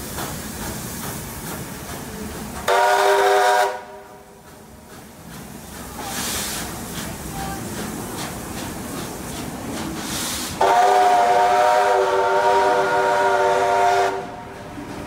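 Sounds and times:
train carriages rolling past: 0.0s - 15.0s
steam locomotive whistle: 2.7s - 4.2s, 10.5s - 14.4s.

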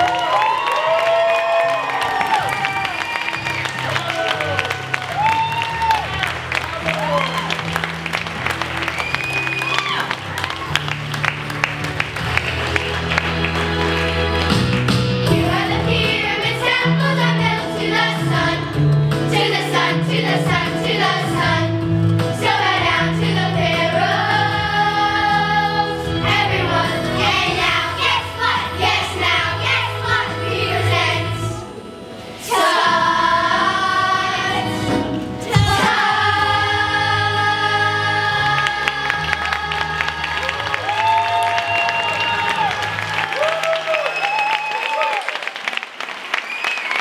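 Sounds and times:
musical accompaniment: 0.0s - 44.6s
children's choir singing: 15.3s - 41.0s.

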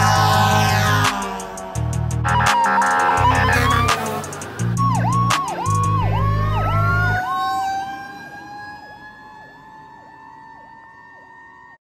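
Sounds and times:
electronic siren swooping: 0.0s - 11.8s
rising siren tone: 0.0s - 11.8s
air horn blast: 0.4s - 4.5s.

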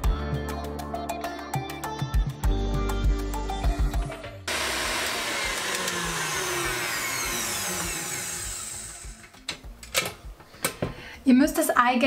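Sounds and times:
stand mixer whisking: 4.5s - 9.2s.

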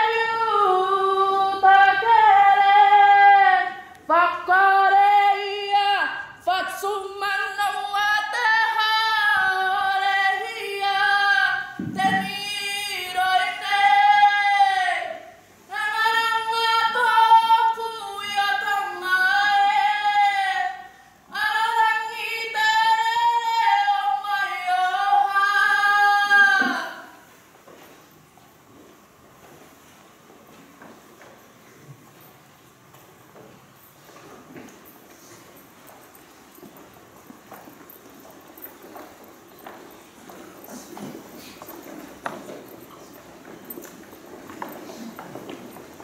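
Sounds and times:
woman singing unaccompanied: 0.0s - 27.2s.

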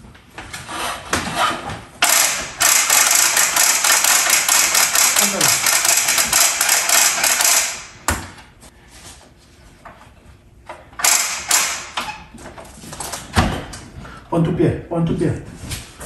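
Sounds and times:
fast rattling mechanical clicking: 2.0s - 7.8s.

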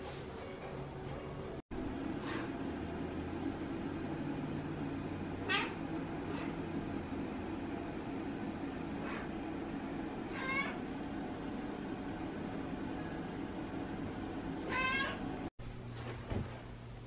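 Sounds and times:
cat meowing: 5.4s - 6.5s, 10.3s - 10.8s, 14.6s - 15.2s.

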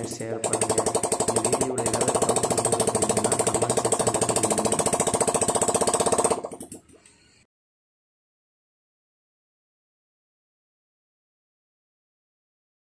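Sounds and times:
motorcycle engine open exhaust popping: 0.0s - 6.9s.

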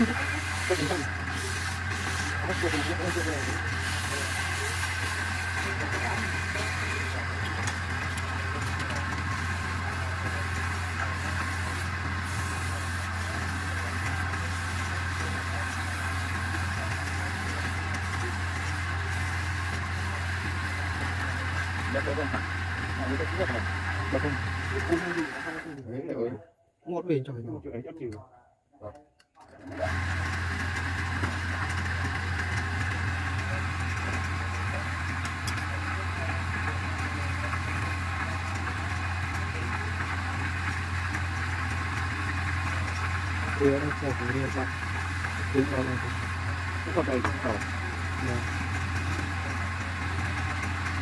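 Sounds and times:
sandpaper hissing on spinning wood: 0.0s - 25.6s
wood lathe humming: 0.0s - 25.8s, 29.6s - 51.0s.

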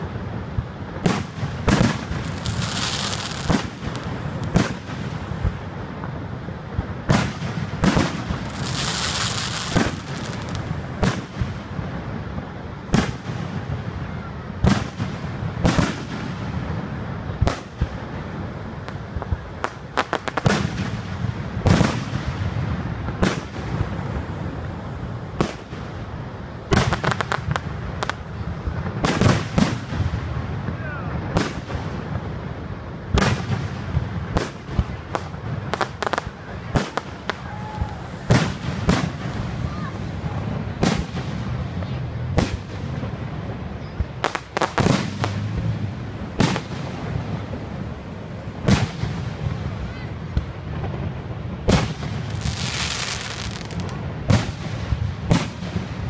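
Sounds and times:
crackling reports: 0.0s - 14.0s.

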